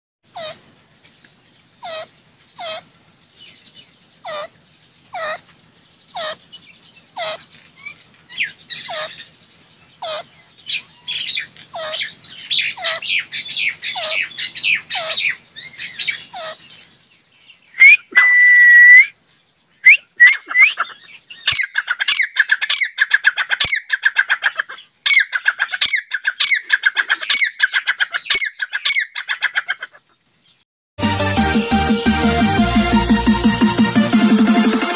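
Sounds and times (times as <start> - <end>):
francolin calling: 19.8 - 23.0.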